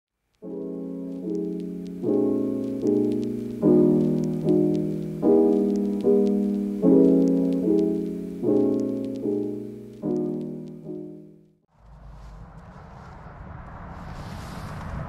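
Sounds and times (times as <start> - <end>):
faint clicks: 0.3 - 11.0
soft piano chords: 0.4 - 11.7.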